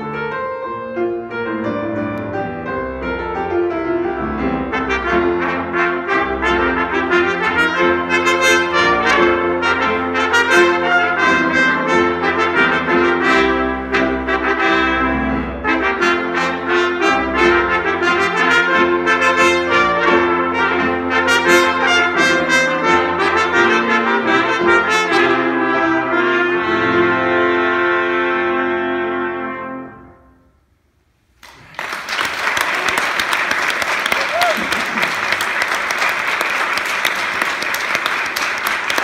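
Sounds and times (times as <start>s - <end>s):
trumpets and piano playing: 0.0s - 30.6s
applause: 31.4s - 39.0s.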